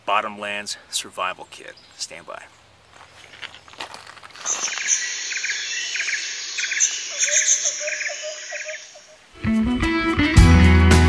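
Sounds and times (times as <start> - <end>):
high insect hiss: 4.4 - 9.3
insects chirping in trilled pulses: 4.4 - 9.3.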